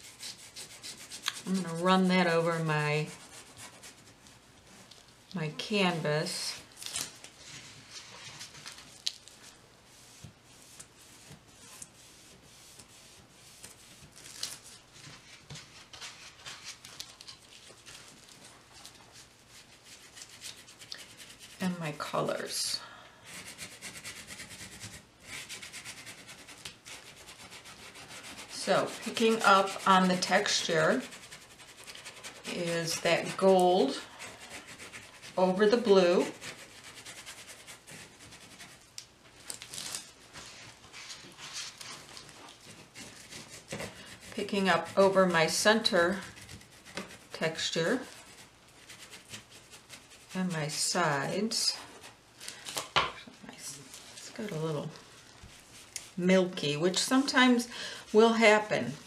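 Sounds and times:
paintbrush scratching on canvas: 0.0 - 4.9, 19.1 - 22.6, 23.3 - 38.9, 40.9 - 52.2, 55.2 - 59.0.

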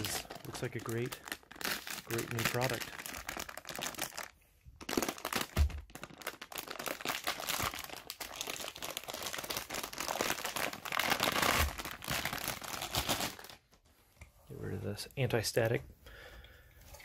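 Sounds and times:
plastic packaging crinkling: 0.0 - 13.9.

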